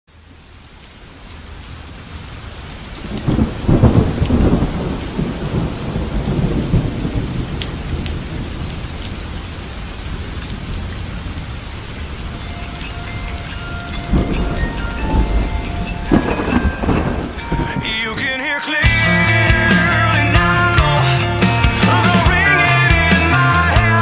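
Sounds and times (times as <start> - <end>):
steady rain: 0.1 - 24.0
low thunder rumble: 3.2 - 8.8, 13.2 - 18.2.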